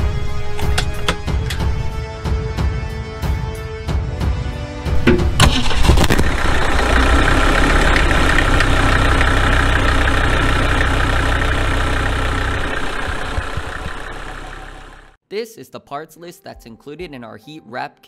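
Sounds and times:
truck engine cranking and idling: 0.0s - 2.0s, 4.9s - 15.2s.

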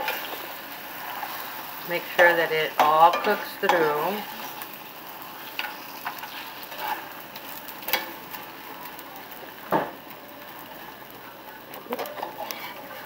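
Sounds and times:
spatula scraping a pan: 0.0s - 8.5s, 11.9s - 13.0s
food sizzling in a skillet: 0.0s - 13.0s.

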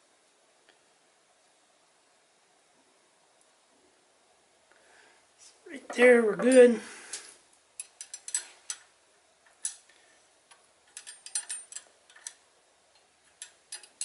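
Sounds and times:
metal clicks of hand tools: 7.8s - 8.9s, 10.5s - 12.4s, 13.0s - 14.0s.

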